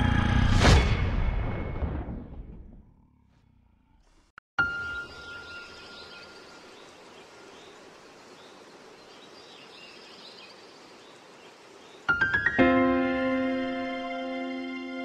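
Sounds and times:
birds chirping: 4.6 - 15.0.

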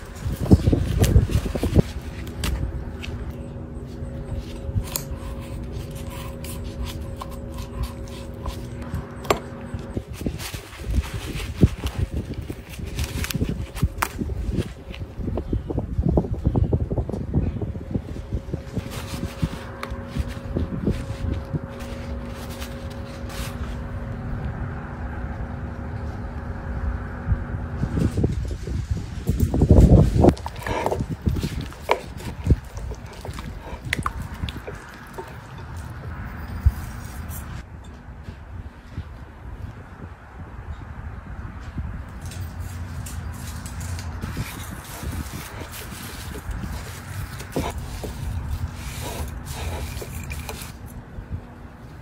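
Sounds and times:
low hum: 0.0 - 52.0
knife cutting and scraping bones: 4.0 - 14.7, 30.3 - 37.6, 43.6 - 51.0
paper towel rubbing: 44.2 - 50.7.

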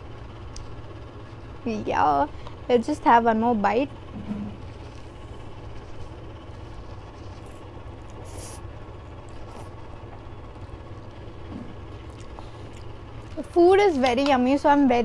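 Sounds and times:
low background hum: 0.0 - 15.0
slurping and chewing noodles: 5.7 - 10.8, 12.0 - 13.4.

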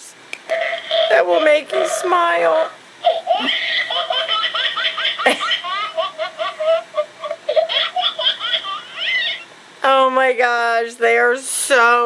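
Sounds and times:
high-pitched recorded giggling: 3.0 - 9.5.

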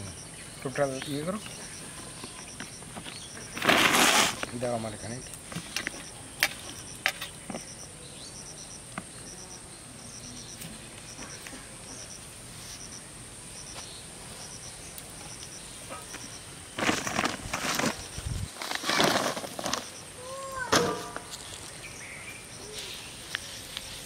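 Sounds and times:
cricket chirping: 0.0 - 24.0
high insect hiss: 0.0 - 24.0
plastic sack rustling: 3.0 - 4.6, 16.7 - 19.9.

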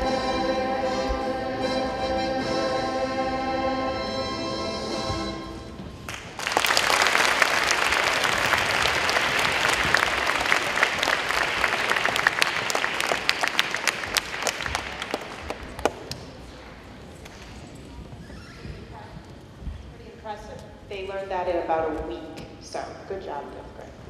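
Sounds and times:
children applauding: 6.1 - 16.0.

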